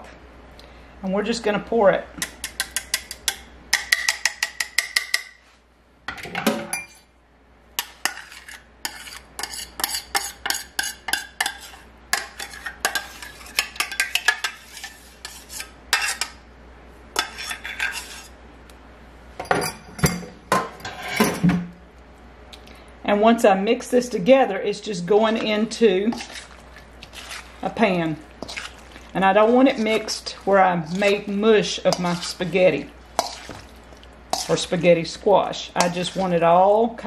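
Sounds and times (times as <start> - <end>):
metal spoon scraping saucepan: 7.8 - 16.4, 17.2 - 18.4, 20.8 - 21.4, 24.9 - 33.7, 34.3 - 37.0.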